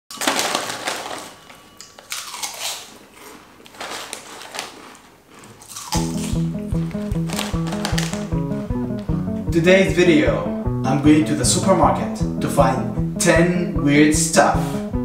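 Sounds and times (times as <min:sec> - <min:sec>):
plastic snack bag crinkling: 0:00.1 - 0:08.5
music with steady beat: 0:06.0 - 0:15.0.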